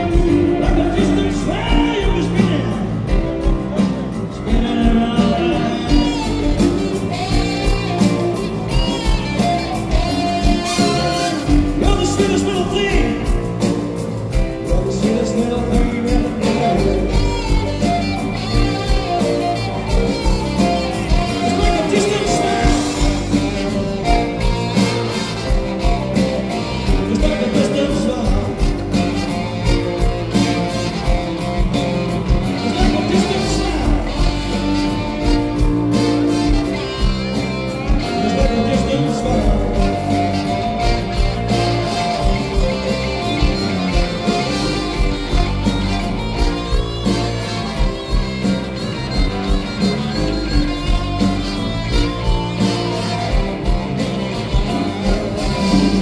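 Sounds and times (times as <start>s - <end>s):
man singing: 0.0s - 7.1s, 10.5s - 13.6s, 14.5s - 17.9s, 21.1s - 24.3s, 26.6s - 30.1s, 32.4s - 35.4s, 38.0s - 41.6s
bass: 0.0s - 56.0s
drums: 0.0s - 56.0s
electric guitar: 0.0s - 56.0s
horn section: 0.0s - 56.0s
keyboard: 0.0s - 56.0s.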